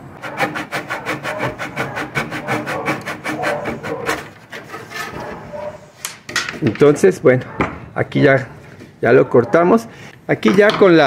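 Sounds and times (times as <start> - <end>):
hand saw cutting wood: 0.2 - 5.3.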